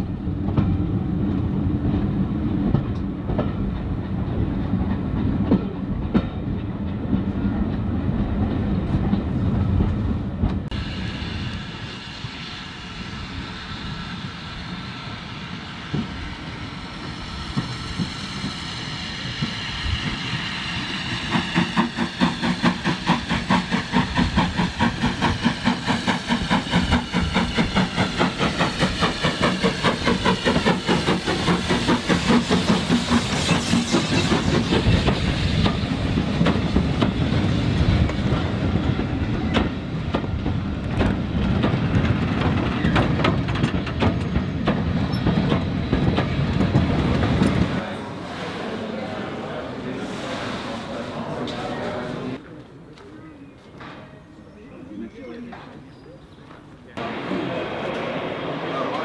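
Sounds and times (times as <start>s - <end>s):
train rumbling: 0.0s - 52.8s, 56.4s - 59.0s
train wheels clickety-clack: 0.4s - 10.8s, 15.5s - 47.8s.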